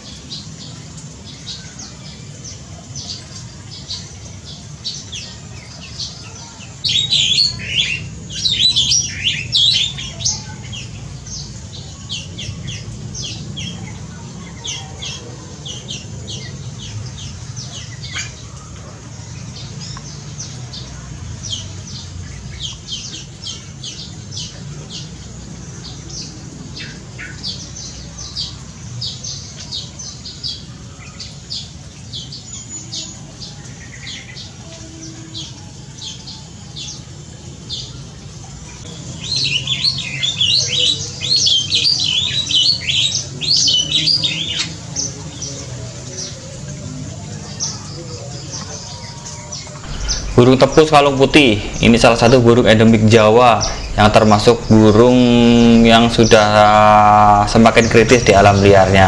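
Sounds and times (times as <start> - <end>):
birds chirping and squawking: 47.6 - 59.0
faint low hum: 49.8 - 59.0.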